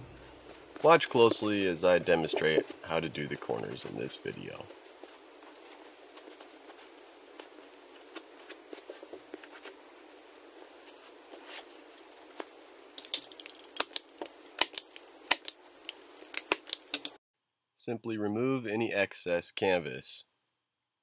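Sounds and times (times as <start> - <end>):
canvas cloth rustling: 0.1 - 12.7.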